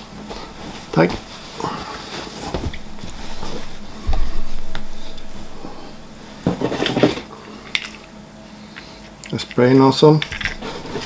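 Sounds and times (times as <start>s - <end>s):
rustling: 0.0s - 7.0s
dull thump: 2.5s - 7.0s.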